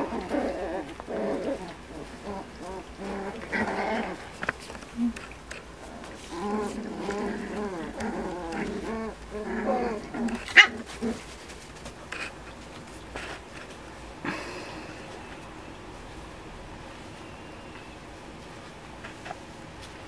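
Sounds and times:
puppies crying: 0.0s - 4.4s.

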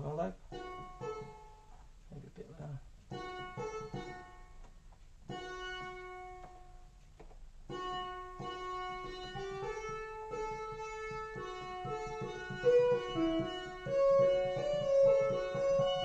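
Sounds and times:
synthesizer plucked notes: 7.7s - 16.0s.

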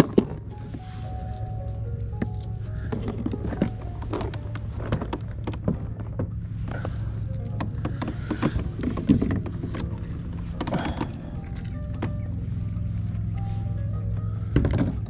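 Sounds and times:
steady low hum: 0.0s - 15.0s
fishing tackle clicking and knocking: 1.4s - 12.3s.

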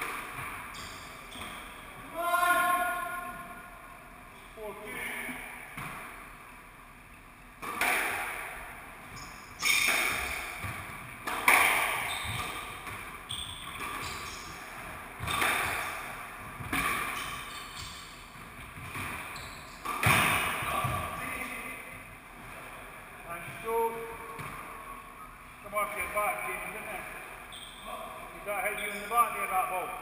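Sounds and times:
squash ball hit by rackets: 7.6s - 8.8s, 9.6s - 21.2s
ball smacking off court walls: 7.6s - 17.9s, 18.6s - 21.3s.

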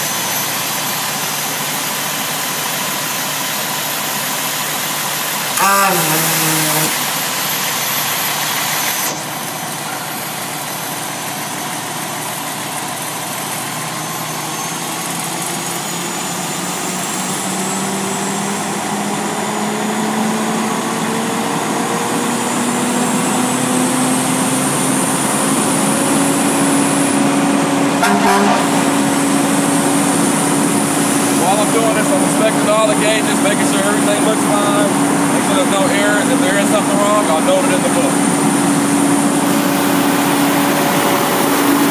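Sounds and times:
fire truck engine running pump: 0.0s - 41.9s.

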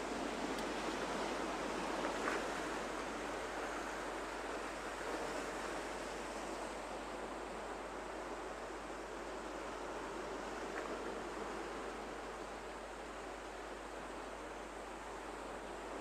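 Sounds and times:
faint ticks: 0.5s - 1.0s.

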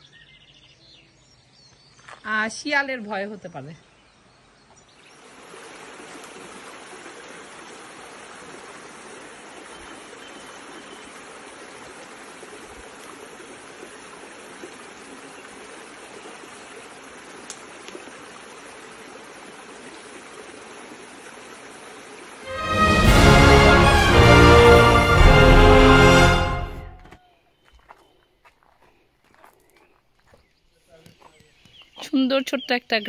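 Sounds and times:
stream rushing water: 5.0s - 27.1s.

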